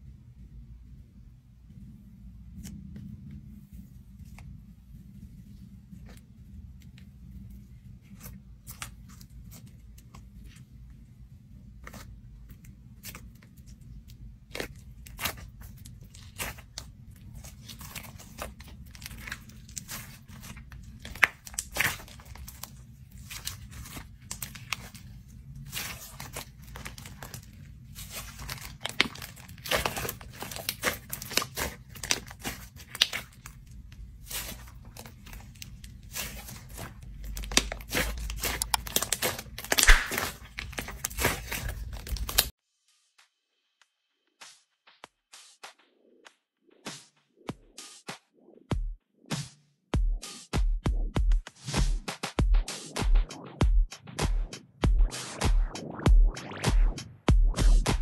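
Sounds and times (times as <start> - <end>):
slime crunching and clicking: 25.7 - 33.6, 34.2 - 42.5.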